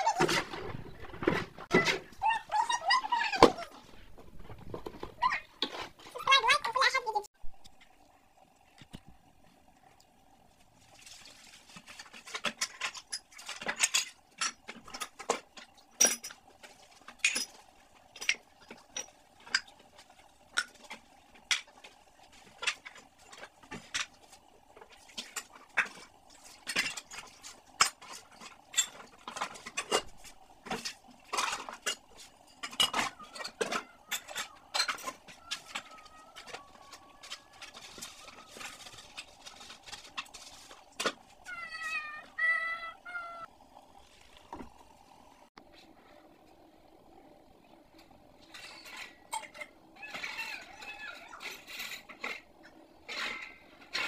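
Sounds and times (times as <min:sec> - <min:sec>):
faint steady hum: 0:00.0 - 0:54.0
dishes clinking and knocking: 0:12.0 - 0:19.9, 0:20.5 - 0:41.4, 0:48.4 - 0:54.0.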